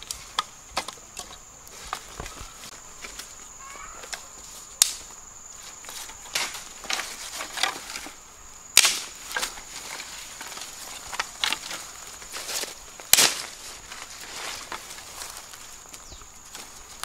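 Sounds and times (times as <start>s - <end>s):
twigs snapping: 4.0s - 5.2s, 5.8s - 17.0s.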